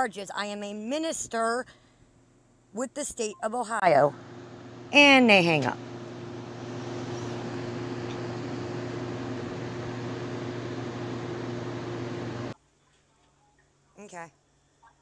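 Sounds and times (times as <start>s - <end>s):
steady low hum: 4.0s - 12.6s.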